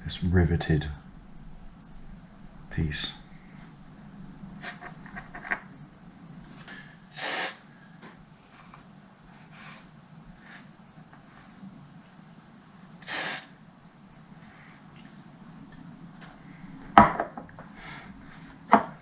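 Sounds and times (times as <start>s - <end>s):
short hissing bursts: 7.1s - 7.7s, 13.0s - 13.6s.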